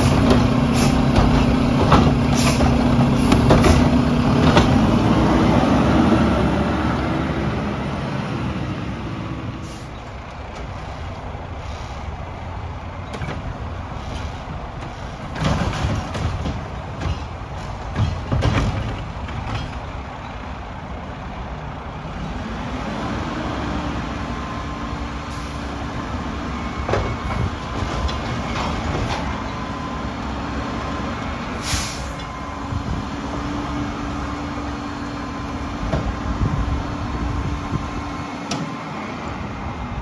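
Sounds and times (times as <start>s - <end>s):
short hiss of air: 0.0s - 1.1s, 31.6s - 32.2s
knocks and clunks: 0.0s - 5.0s, 13.0s - 20.3s, 26.8s - 29.6s, 35.8s - 36.6s
garbage truck engine humming: 0.0s - 40.0s.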